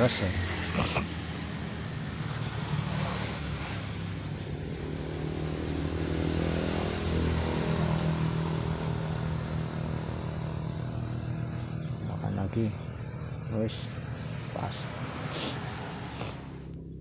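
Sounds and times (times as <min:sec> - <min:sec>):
motor engine running: 0:00.0 - 0:16.8.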